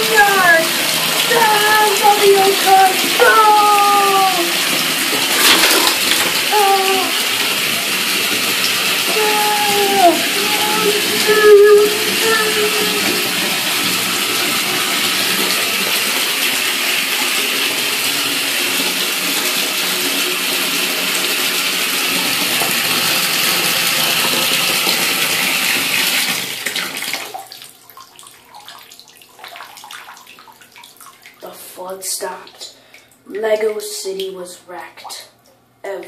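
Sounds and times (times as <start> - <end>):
water trickling and dripping: 0.0 - 17.3, 27.0 - 31.7
water running from bathtub tap: 0.0 - 36.0.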